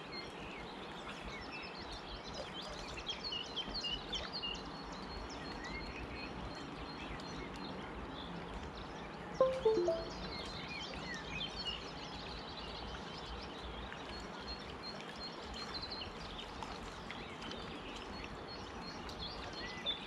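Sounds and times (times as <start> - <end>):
pitched sound falling in steps: 9.4 - 10.2.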